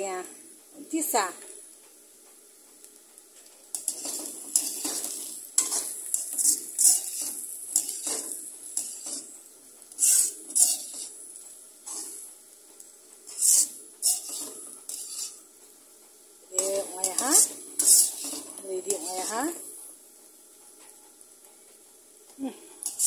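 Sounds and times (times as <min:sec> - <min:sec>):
frying sizzle: 0:00.0 - 0:23.0
metal skimmer scraping a wok: 0:03.7 - 0:12.3, 0:13.2 - 0:15.5, 0:16.5 - 0:19.8, 0:22.8 - 0:23.0.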